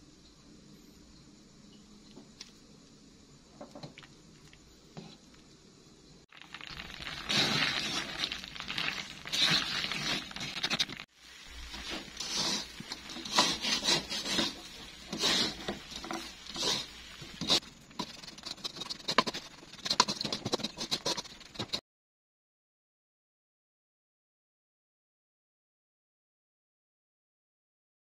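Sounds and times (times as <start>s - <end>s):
wooden spatula scraping wok: 6.5s - 21.8s.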